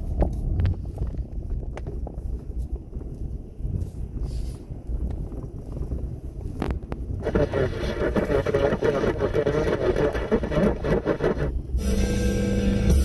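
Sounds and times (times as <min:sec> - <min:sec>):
car cabin rumble on snowy road: 0:00.0 - 0:13.0.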